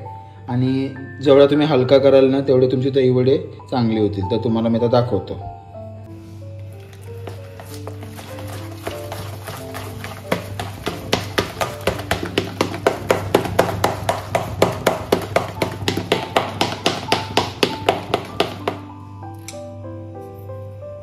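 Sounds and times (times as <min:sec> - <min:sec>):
background music with melody: 0:00.0 - 0:21.0
batter being beaten in a bowl: 0:07.0 - 0:18.9.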